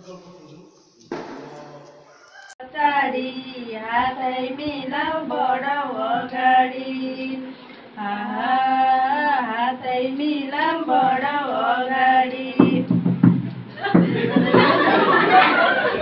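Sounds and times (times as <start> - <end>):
women singing a cappella: 2.6 - 13.0.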